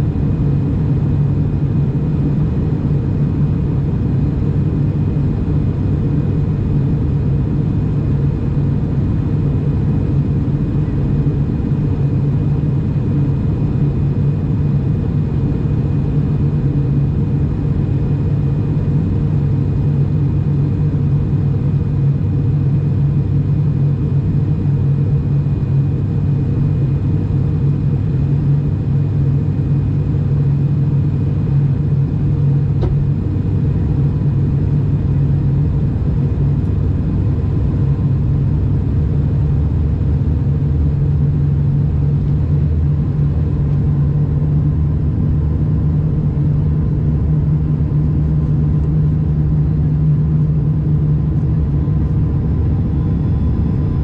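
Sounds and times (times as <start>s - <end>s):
propeller drone: 0.0s - 54.0s.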